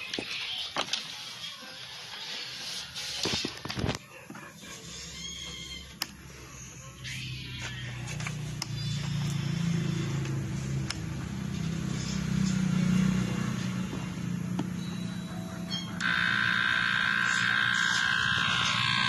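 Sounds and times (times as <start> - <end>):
low electronic tones: 14.6 - 19.0
high steady electronic tone: 14.7 - 19.0.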